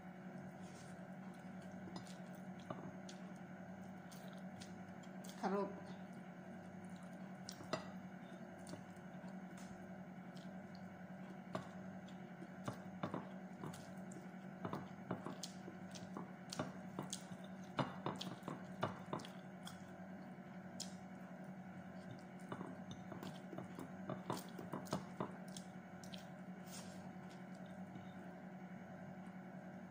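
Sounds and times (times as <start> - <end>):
wet chewing and mouth smacks: 6.6 - 7.8, 8.5 - 21.1, 21.8 - 28.1.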